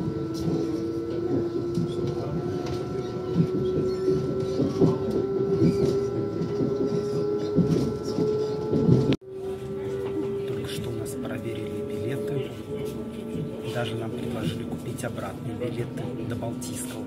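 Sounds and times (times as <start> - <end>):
constant high tone: 0.0 - 15.6
train motor whine: 0.0 - 17.0
wheels clicking over track: 0.3 - 11.8.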